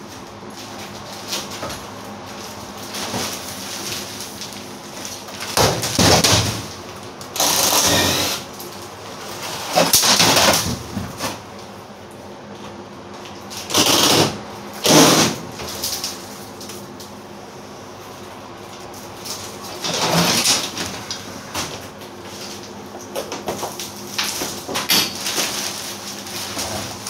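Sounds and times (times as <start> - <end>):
cordless drill running: 7.4 - 8.4.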